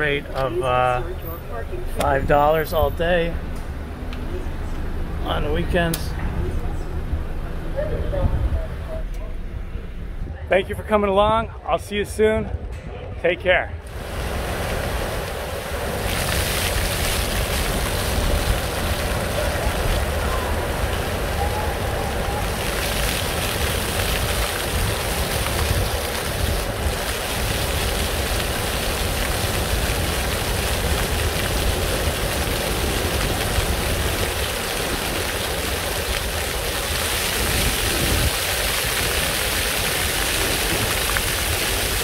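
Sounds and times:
fountain jets splashing: 0:13.9 - 0:42.0
wind on microphone: 0:36.8 - 0:42.0.

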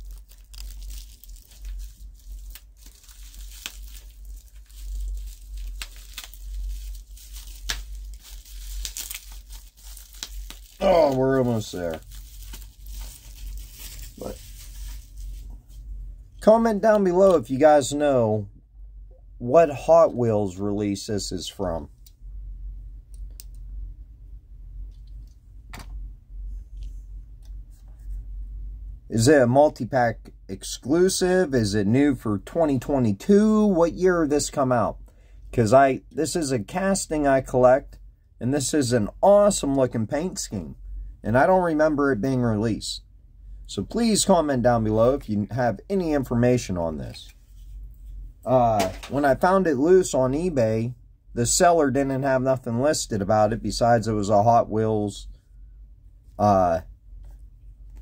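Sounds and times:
packing tape pulled apart: 0:00.0 - 0:15.2
bubble wrap crinkling: 0:00.0 - 0:15.8
low steady hum: 0:00.0 - 0:58.0.

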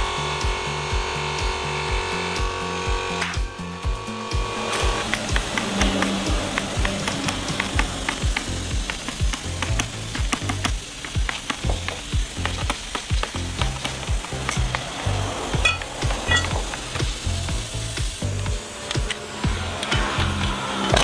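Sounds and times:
background music with steady beat: 0:00.0 - 0:21.0
crackling hiss: 0:04.4 - 0:21.0.

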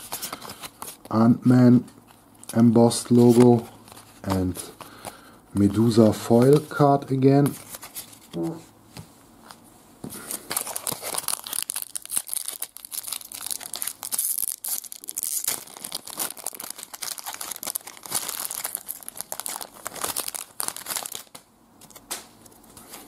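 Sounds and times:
foil wrapper crinkling and tearing: 0:10.2 - 0:22.1.

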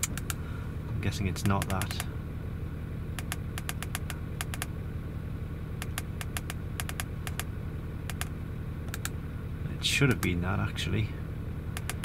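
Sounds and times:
car engine idling: 0:00.0 - 0:12.0
button clicks: 0:08.1 - 0:08.3.

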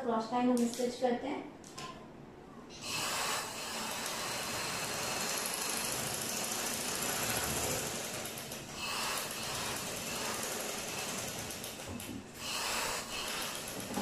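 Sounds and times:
sewing machine stitching: 0:02.8 - 0:14.0.

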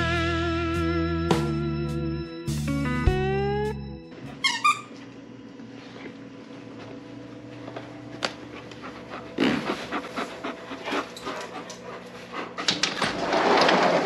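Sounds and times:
steady low hum: 0:05.0 - 0:13.3
dog panting rapidly: 0:08.5 - 0:13.0.

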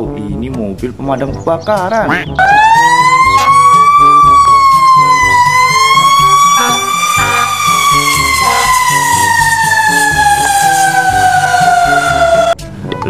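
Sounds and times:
fire truck siren wailing: 0:02.3 - 0:12.6.

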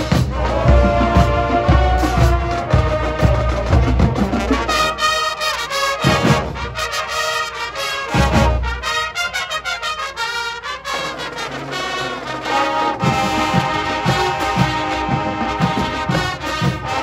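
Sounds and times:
bass drum strokes: 0:00.0 - 0:04.8
marching band playing: 0:00.0 - 0:17.0.

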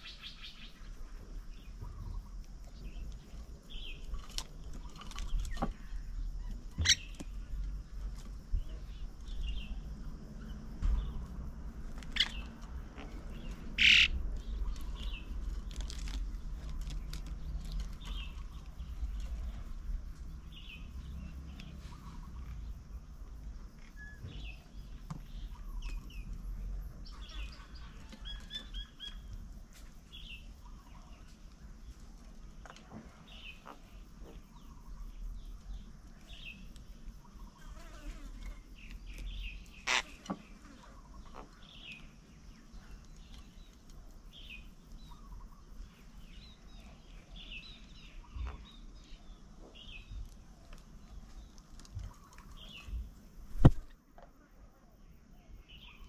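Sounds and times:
birds chirping: 0:00.0 - 0:11.4, 0:12.1 - 0:29.5, 0:38.5 - 0:53.8, 0:55.4 - 0:56.0
steady low rumble: 0:07.0 - 0:23.8.

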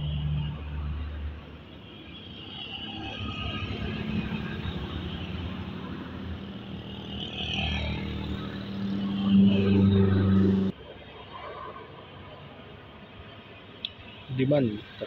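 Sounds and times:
motorcycles driving by: 0:03.7 - 0:10.7.

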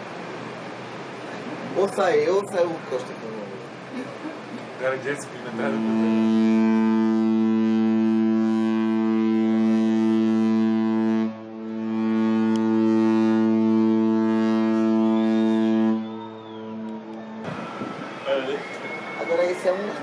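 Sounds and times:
ship's horn blasts: 0:05.4 - 0:20.0.

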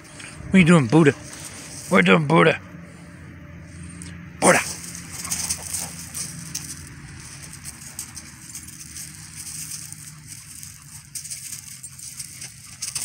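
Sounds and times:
steady low hum: 0:00.0 - 0:13.0
paws scuffing on gravel: 0:00.9 - 0:02.1, 0:04.6 - 0:13.0.

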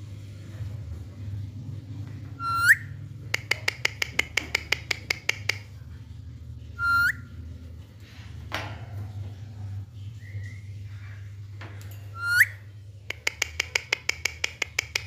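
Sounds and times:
parakeet whistled calls: 0:02.4 - 0:02.9, 0:06.8 - 0:07.3, 0:12.2 - 0:12.6
parakeet clicking chirps: 0:02.6 - 0:05.7, 0:13.1 - 0:15.0.

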